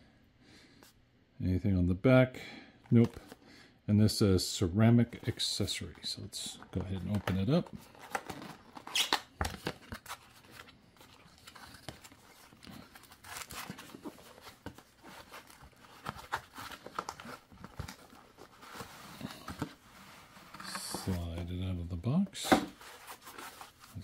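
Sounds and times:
box rustling and scraping: 0:06.4 - 0:21.6, 0:22.4 - 0:24.0.

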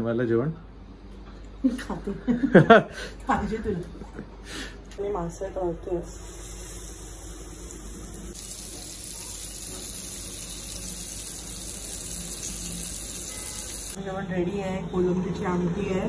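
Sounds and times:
food sizzling in hot oil: 0:06.0 - 0:14.0.

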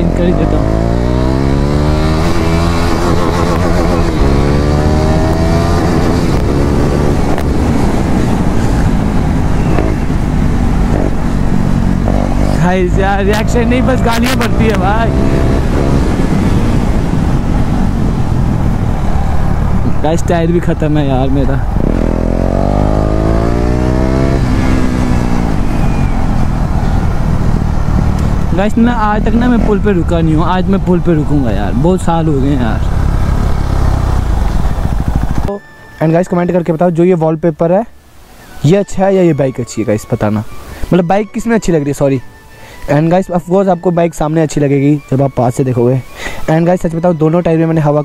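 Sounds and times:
motorcycle engine accelerating: 0:00.0 - 0:35.5
steady rushing noise: 0:00.0 - 0:38.6.

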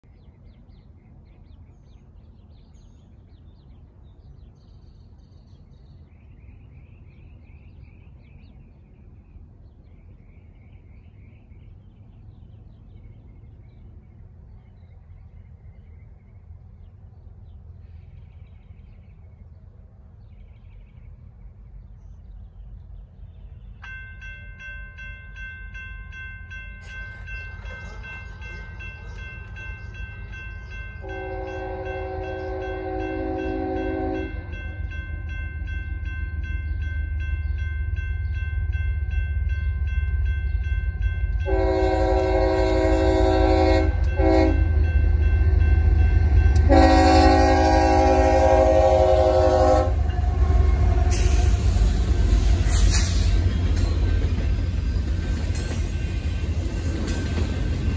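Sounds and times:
freight train rumbling: 0:00.0 - 0:57.9
railroad crossing bells ringing: 0:23.4 - 0:57.9
locomotive air horn blasts: 0:31.0 - 0:34.6, 0:41.4 - 0:52.9.

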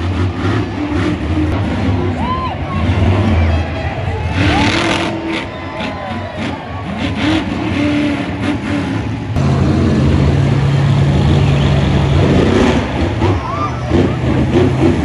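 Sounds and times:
monster truck engines revving: 0:00.0 - 0:15.0.

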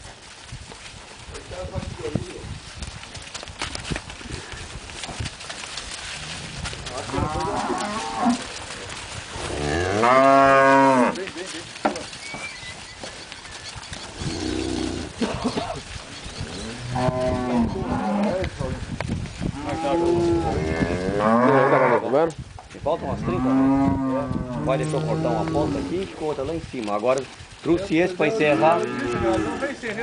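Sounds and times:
cattle mooing: 0:06.2 - 0:08.6, 0:09.4 - 0:11.4, 0:16.5 - 0:18.5, 0:19.6 - 0:22.1, 0:23.2 - 0:26.1, 0:28.2 - 0:29.8.

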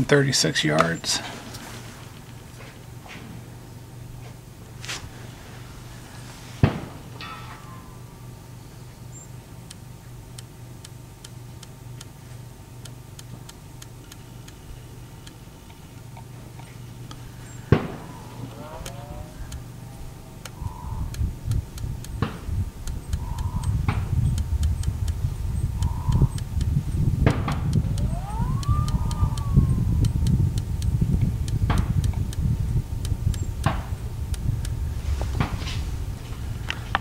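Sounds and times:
loud sharp crack: 0:06.6 - 0:07.9, 0:17.7 - 0:18.5
low rumble: 0:13.8 - 0:37.0.

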